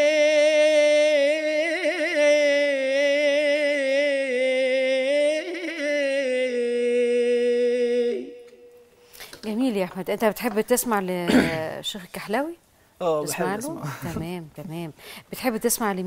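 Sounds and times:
man singing unaccompanied: 0.0 - 8.8.

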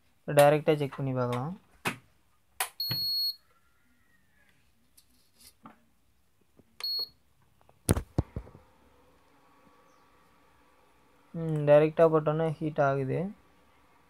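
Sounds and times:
cooktop control panel beeping: 2.8 - 3.4, 6.8 - 7.1.

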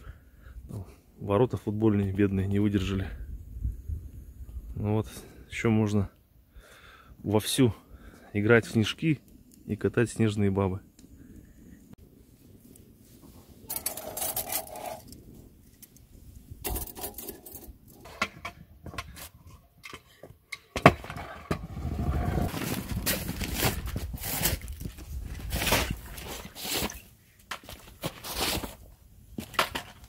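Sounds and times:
scooter wheels rolling on brick: 12.6 - 30.0
wheels clicking over joints: 13.7 - 15.2
metal clinking and scraping: 13.7 - 16.0, 16.6 - 18.5.

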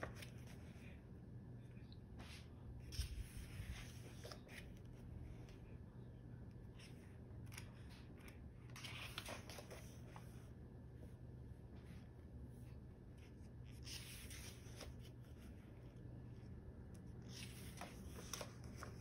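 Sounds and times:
book pages turning: 0.0 - 1.0, 2.8 - 5.5, 6.6 - 10.4, 12.6 - 19.0
faint steady hum: 0.0 - 19.0.

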